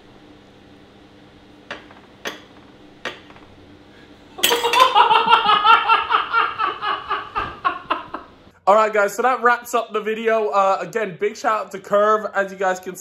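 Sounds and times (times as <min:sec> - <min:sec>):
cutlery clinking on a plate: 0:04.4 - 0:04.9
hearty laughter: 0:04.6 - 0:08.3.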